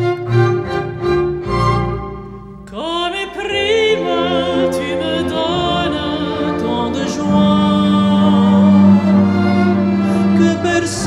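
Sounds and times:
string orchestra: 0.0s - 11.0s
operatic soprano singing: 2.7s - 11.0s.

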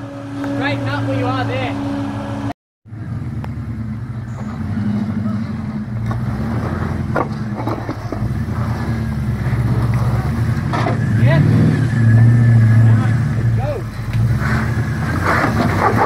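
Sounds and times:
engine running under load: 0.0s - 16.0s.

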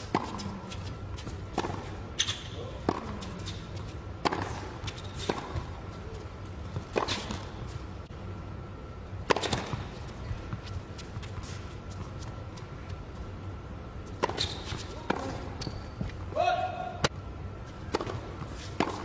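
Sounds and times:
tennis ball bouncing: 0.0s - 5.8s, 9.2s - 9.9s, 14.2s - 16.1s, 17.9s - 19.0s
tennis ball struck by rackets: 1.5s - 3.4s, 4.2s - 5.7s, 9.2s - 9.8s, 14.2s - 15.5s, 17.9s - 19.0s.

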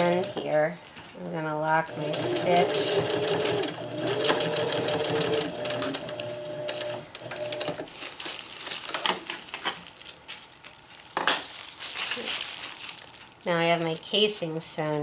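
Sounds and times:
sewing machine stitching: 1.8s - 7.8s
fabric and paper rustling: 7.7s - 14.3s.

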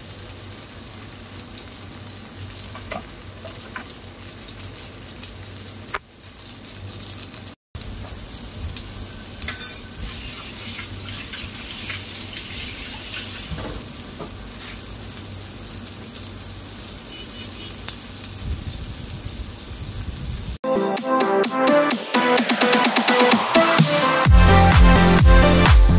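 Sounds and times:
omelette sizzling in oil: 0.0s - 20.6s
oil crackling and popping: 1.4s - 20.6s.

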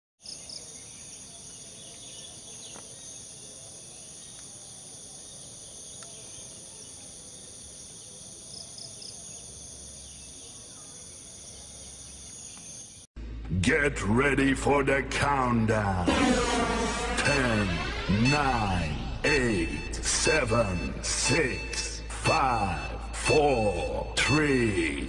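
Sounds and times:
insects chorus: 0.2s - 13.1s.

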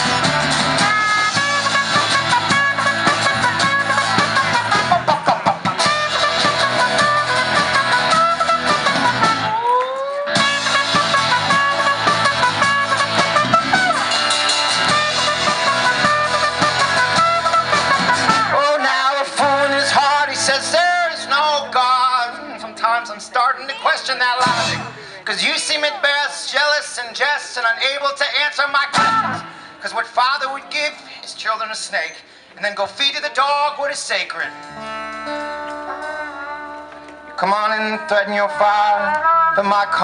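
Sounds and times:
trumpet solo: 0.0s - 5.1s, 5.7s - 22.4s, 34.8s - 40.0s
strummed acoustic guitar: 0.0s - 9.6s, 10.3s - 23.5s, 34.4s - 39.4s
drums: 0.0s - 23.4s, 24.0s - 26.0s, 28.4s - 30.2s
electric guitar: 0.0s - 25.2s, 28.9s - 29.8s, 34.5s - 40.0s.

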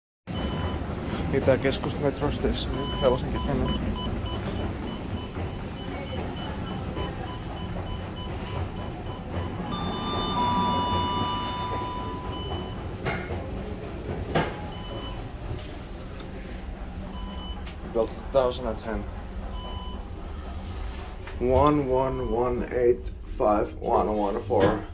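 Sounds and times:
electronic two-tone chime: 9.7s - 12.7s
steady low rumble: 14.7s - 24.5s.

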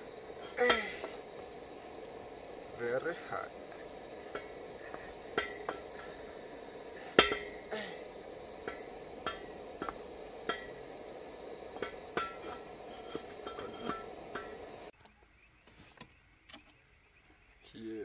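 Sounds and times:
gas burner hissing: 0.0s - 15.0s
wooden stick knocking on steel pot: 0.4s - 14.8s.

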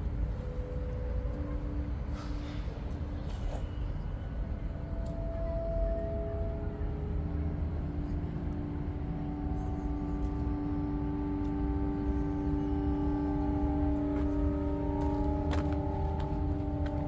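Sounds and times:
city traffic rumble: 0.0s - 17.0s
long level tones: 3.9s - 17.0s.

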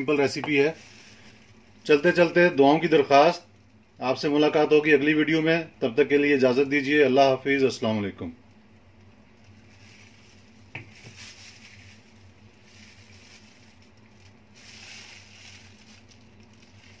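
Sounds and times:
straws rustling: 0.0s - 2.3s, 9.4s - 17.0s.

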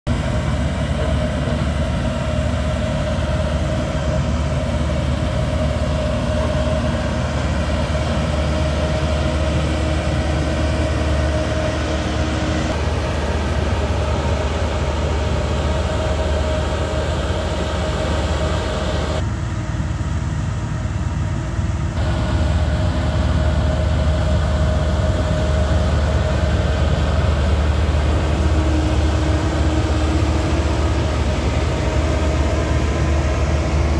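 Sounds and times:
road roller diesel engine humming: 0.0s - 33.9s.

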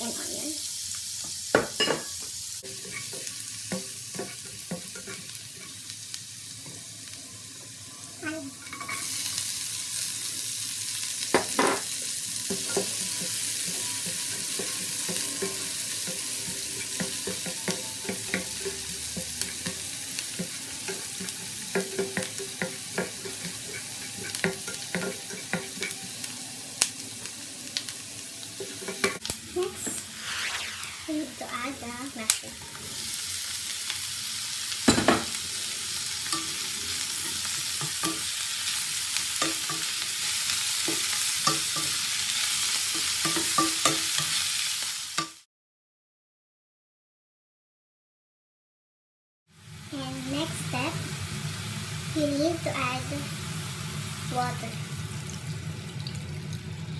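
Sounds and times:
garlic and onion sizzling: 0.0s - 45.5s, 49.5s - 56.9s
spatula scraping a pan: 2.6s - 5.8s, 12.4s - 26.1s.

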